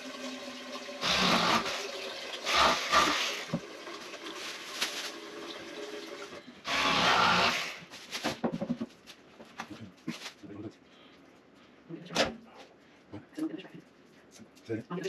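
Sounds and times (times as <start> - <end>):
plastic bag crinkling: 4.0 - 5.6.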